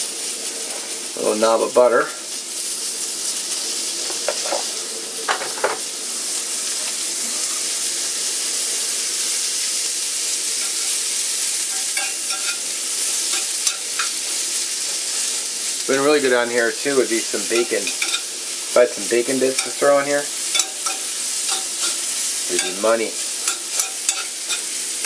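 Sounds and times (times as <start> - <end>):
mushrooms sizzling in butter: 0.0 - 25.0
utensil knocking on pan: 4.1 - 4.6, 11.7 - 12.6, 17.5 - 18.2, 20.5 - 22.8, 23.4 - 24.7.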